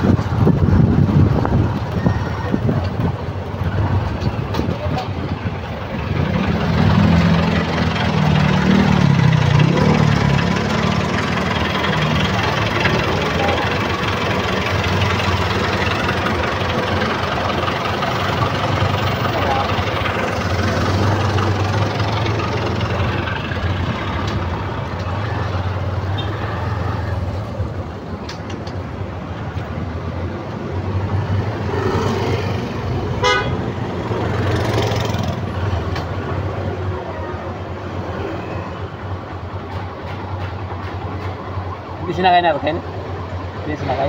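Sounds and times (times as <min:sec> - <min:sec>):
street traffic: 0:00.0 - 0:44.0
vehicle engine humming: 0:00.0 - 0:44.0
short horn toot: 0:33.2 - 0:33.6.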